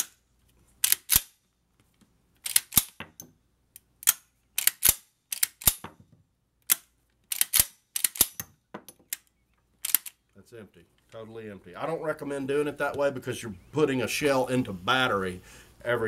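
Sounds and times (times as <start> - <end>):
shotgun bolt racking clacks: 0.8 - 1.3, 2.4 - 6.0, 6.6 - 10.3.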